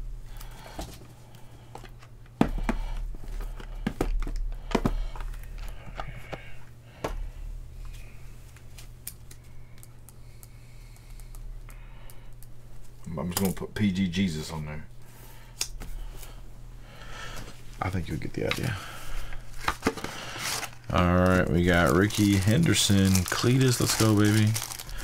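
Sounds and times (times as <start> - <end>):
steady low hum: 0.0 - 25.0
plastic wrappers crinkling: 19.3 - 25.0.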